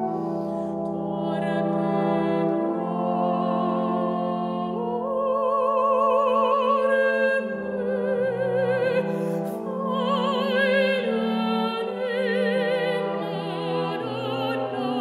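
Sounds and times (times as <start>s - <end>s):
soprano singing operatic notes: 0.0s - 15.0s.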